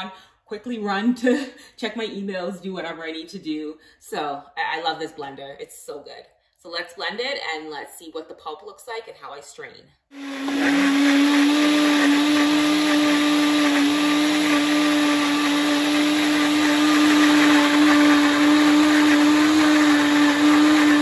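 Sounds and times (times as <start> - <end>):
blender motor running: 10.2 - 21.0.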